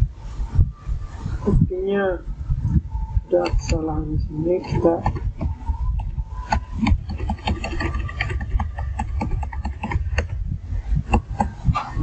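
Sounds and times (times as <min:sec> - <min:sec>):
low steady rumble: 0:00.0 - 0:12.0
keyboard keys clicking: 0:06.0 - 0:10.3.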